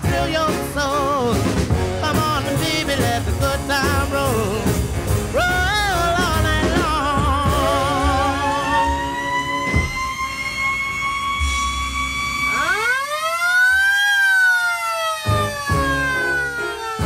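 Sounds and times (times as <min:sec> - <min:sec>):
siren wailing: 0:07.4 - 0:17.0.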